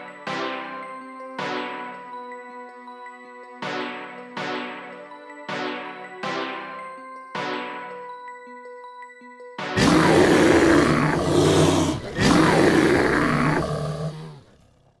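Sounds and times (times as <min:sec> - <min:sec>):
music: 0:00.0 - 0:14.4
big animal roars: 0:09.8 - 0:15.0.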